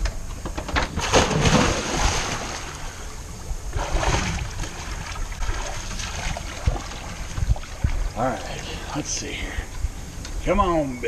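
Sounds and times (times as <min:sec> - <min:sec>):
wind on microphone: 0:00.0 - 0:08.9
water splashing: 0:01.0 - 0:08.2.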